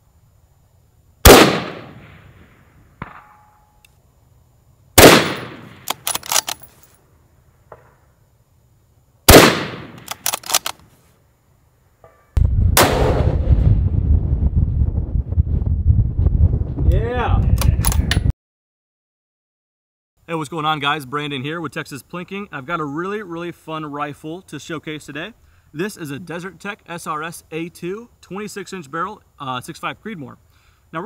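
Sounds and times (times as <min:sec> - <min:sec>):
rifle shots with echo: 0:01.3 - 0:02.4, 0:05.0 - 0:06.4, 0:09.3 - 0:10.6, 0:12.8 - 0:13.4
faint ringing ping: 0:03.1 - 0:03.9
rifle bolt clicking: 0:05.2 - 0:06.7, 0:09.9 - 0:10.8.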